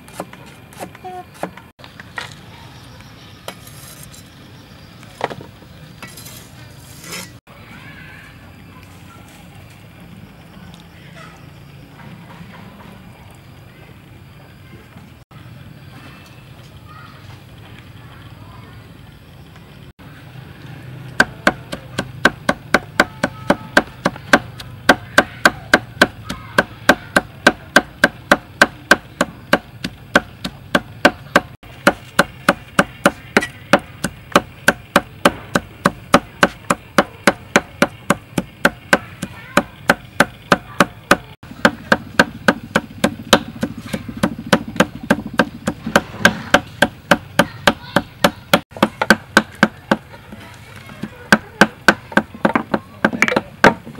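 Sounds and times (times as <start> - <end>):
cleaver chopping on board: 21.2 - 50.0.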